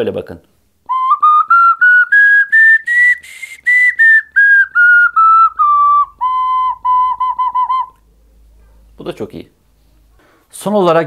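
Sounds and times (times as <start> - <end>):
ocarina melody: 0.8 - 8.0.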